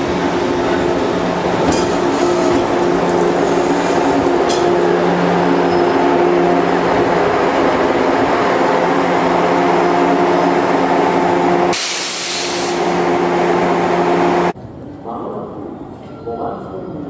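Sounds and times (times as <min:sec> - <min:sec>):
train equipment humming: 0:00.0 - 0:14.6
compressed air hiss: 0:11.7 - 0:12.9.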